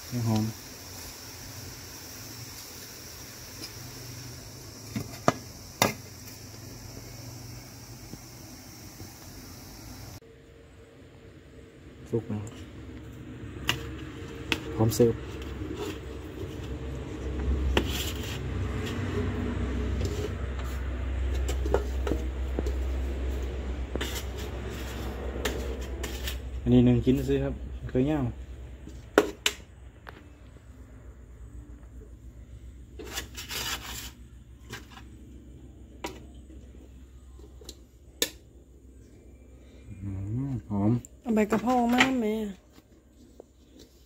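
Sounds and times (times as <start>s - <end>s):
steady low rumble: 6.4s - 29.1s
spoon scraping metal pot: 23.9s - 26.6s.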